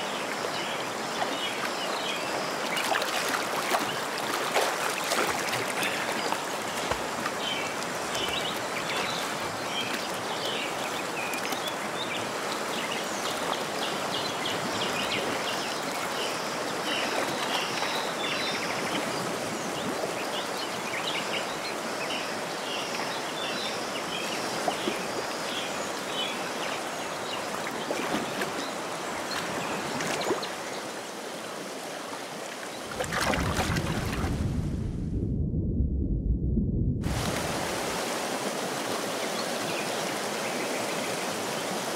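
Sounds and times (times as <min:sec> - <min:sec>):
fast-flowing river rushing: 0:00.0 - 0:19.6, 0:37.1 - 0:41.9.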